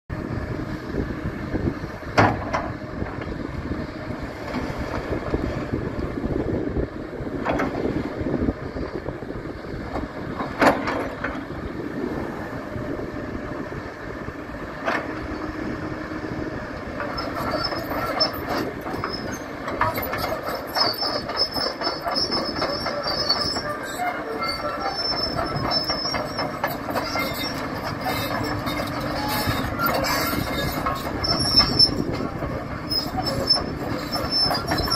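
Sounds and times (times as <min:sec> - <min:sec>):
excavator diesel engine: 0:00.1 - 0:34.9
crawler tracks squealing: 0:16.7 - 0:34.9.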